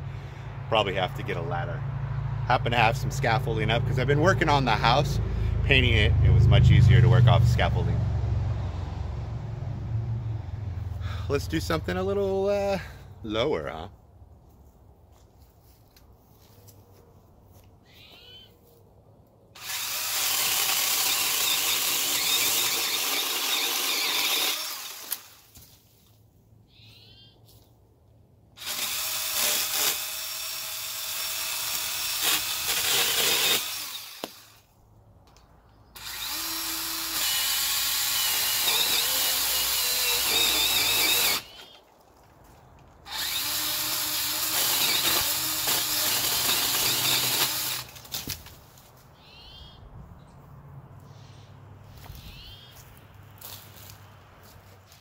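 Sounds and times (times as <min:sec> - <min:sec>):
pole saw cutting branches: 0:19.6 - 0:25.8, 0:28.6 - 0:34.7, 0:36.0 - 0:41.8, 0:43.0 - 0:48.9.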